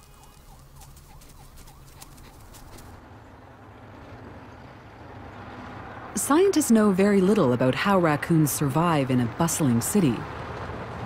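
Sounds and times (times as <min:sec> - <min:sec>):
low rumble of traffic: 0:00.0 - 0:11.0
street traffic: 0:00.0 - 0:11.0.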